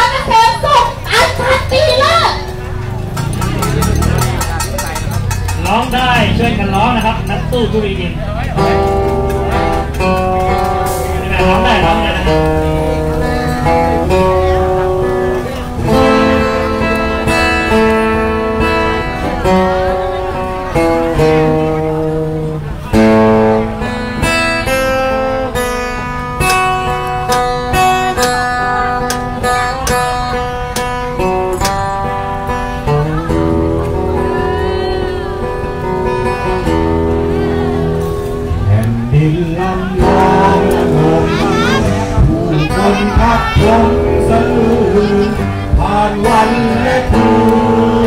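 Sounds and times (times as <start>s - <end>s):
acoustic guitar strumming: 0.0s - 48.0s
backing music: 0.0s - 48.0s
man singing into microphone: 38.7s - 48.0s.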